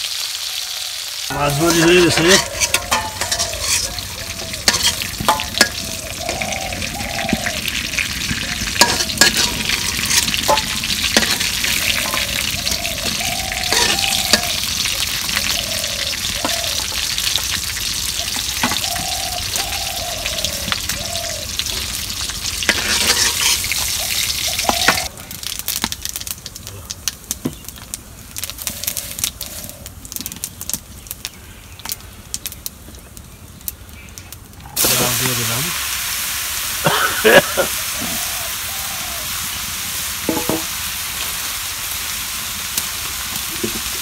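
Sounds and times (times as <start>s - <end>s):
fish sizzling in hot oil: 0.0s - 44.0s
metal spoon scraping a pan: 1.7s - 6.5s, 8.3s - 14.7s, 22.7s - 25.0s.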